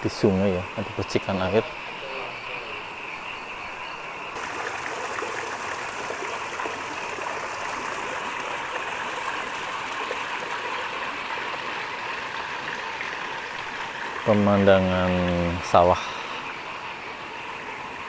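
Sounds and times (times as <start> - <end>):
running water splashing: 4.4 - 16.1.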